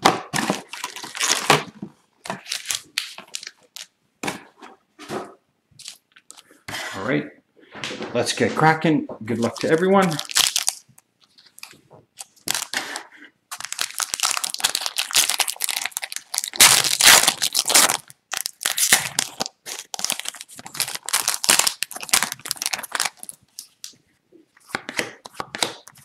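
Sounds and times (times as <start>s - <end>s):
foil wrapper tearing and crinkling: 9.6s - 10.8s, 11.4s - 12.9s, 13.5s - 23.8s.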